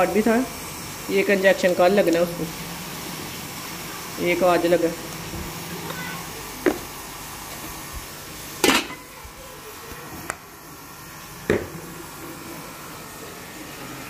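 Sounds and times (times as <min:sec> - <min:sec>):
metal lid clanking on pot: 0:08.6 - 0:09.0.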